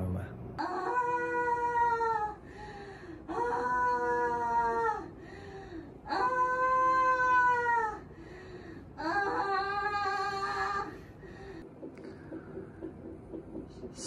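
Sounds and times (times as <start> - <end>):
woman moaning in pain: 0.6 - 2.4, 3.2 - 8.1, 9.0 - 11.0
quiet breaths: 2.3 - 3.3, 5.0 - 6.1, 8.0 - 9.0, 10.7 - 14.0.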